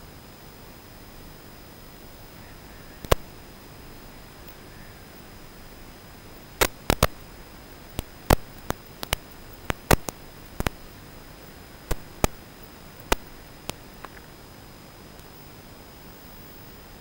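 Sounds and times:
faint high whine: 0.0 - 17.0
static hiss: 0.0 - 17.0
sharp clicks: 3.0 - 3.4, 6.4 - 14.4.

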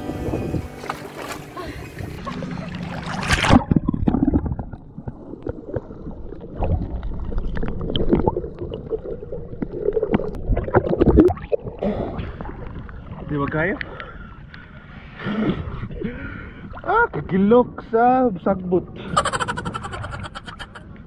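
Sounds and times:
loud splash into water: 2.8 - 4.1.

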